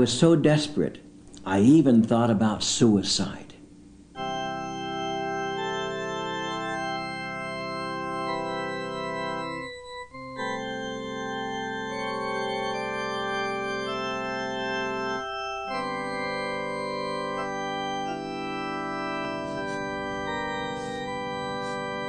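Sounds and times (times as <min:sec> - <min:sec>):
organ playing sustained chords: 0:04.1 - 0:22.0.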